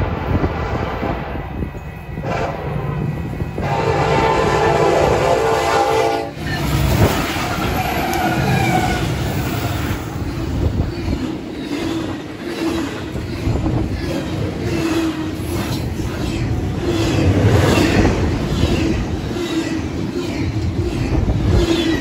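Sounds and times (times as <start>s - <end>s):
train rumbling and wheel clatter: 0.0s - 22.0s
train air horn: 2.2s - 2.8s, 3.6s - 6.4s
wind on microphone: 6.5s - 22.0s.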